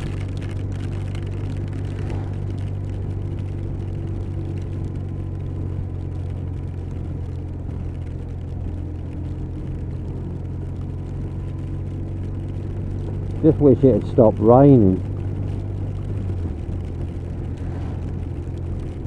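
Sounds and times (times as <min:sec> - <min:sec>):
motorcycle engine drone: 0:00.0 - 0:19.0
road and wind noise: 0:00.0 - 0:19.0.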